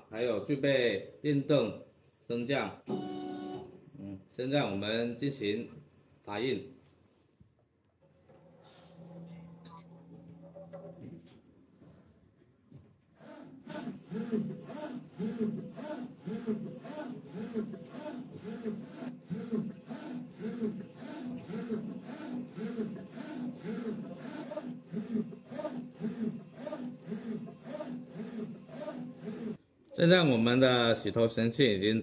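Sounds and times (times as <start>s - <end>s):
printer carriage whirring: 2.9s - 4.0s, 8.0s - 11.4s, 13.2s - 29.6s.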